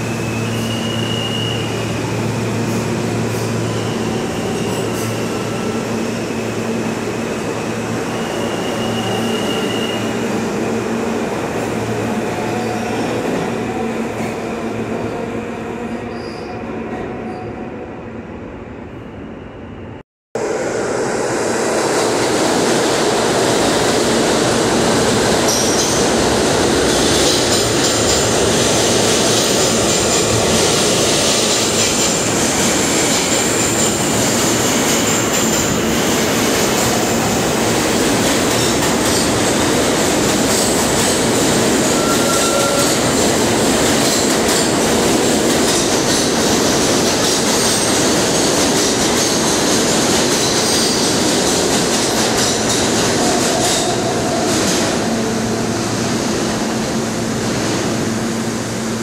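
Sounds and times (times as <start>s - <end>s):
subway train rumbling: 0.0s - 59.0s
wheel squeal: 8.1s - 10.1s, 41.8s - 43.0s.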